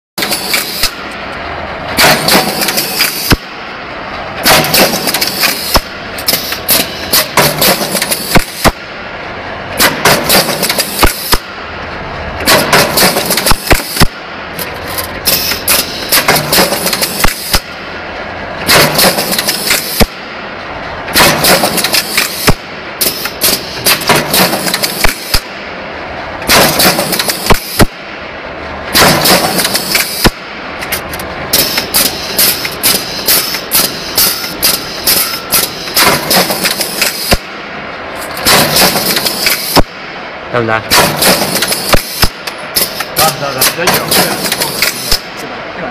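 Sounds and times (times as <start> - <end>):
punching machine noise bursts: 0.2 - 1.1, 1.8 - 11.7, 12.4 - 18.0, 18.6 - 28.3, 28.9 - 30.7, 31.5 - 37.8, 38.4 - 45.4
sharp punch strokes: 2.0 - 3.7, 4.4 - 9.0, 9.8 - 11.6, 12.4 - 14.3, 14.9 - 17.8, 18.6 - 20.4, 21.1 - 25.7, 26.4 - 28.2, 28.9 - 30.6, 31.5 - 37.7, 38.3 - 45.4.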